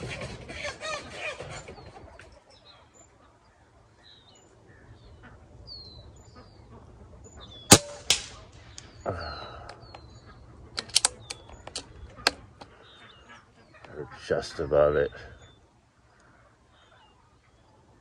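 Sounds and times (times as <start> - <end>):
small birds chirping: 0.0 - 18.0
pellet striking metal target: 7.7 - 8.5
air rifle shot crack: 7.7 - 8.9
rifle action clicks: 10.7 - 12.7.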